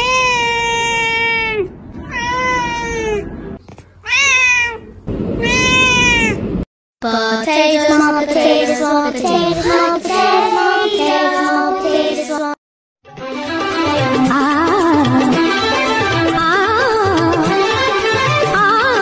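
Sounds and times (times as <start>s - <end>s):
cat meowing: 0.0s - 3.4s, 4.0s - 6.4s.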